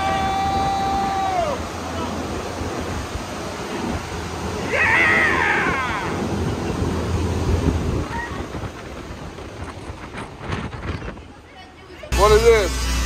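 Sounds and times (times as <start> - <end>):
fan wind blasting microphone: 0.0 - 13.0
person shrieking: 4.7 - 6.3.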